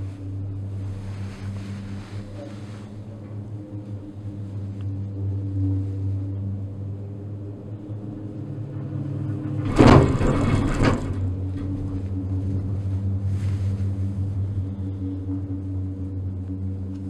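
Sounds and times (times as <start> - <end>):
gondola cabin humming: 0.0 - 17.0
rumbling clatter over tower wheels: 8.7 - 14.5.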